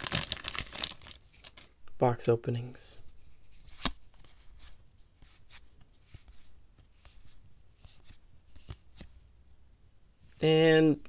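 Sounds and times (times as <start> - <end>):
cards being flipped through: 3.5 - 9.2.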